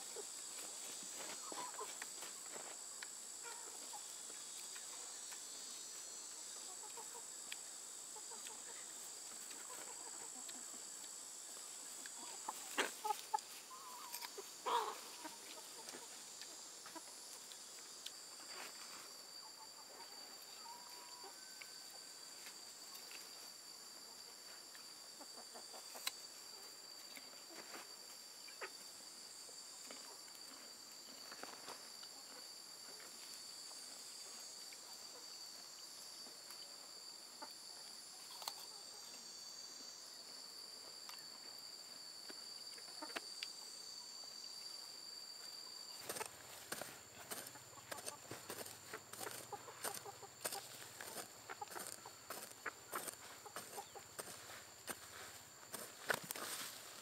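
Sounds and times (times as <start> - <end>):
chickens clucking: 0.0 - 2.7, 3.4 - 18.7, 25.2 - 27.8, 46.0 - 55.0
high-pitched insect drone: 0.0 - 57.0.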